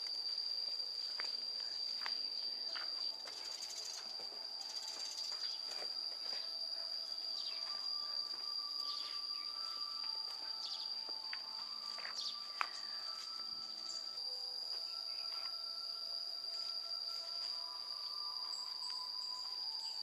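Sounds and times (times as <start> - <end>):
insects shrilling: 0.0 - 20.0
birds chirping and whistling: 7.3 - 14.2.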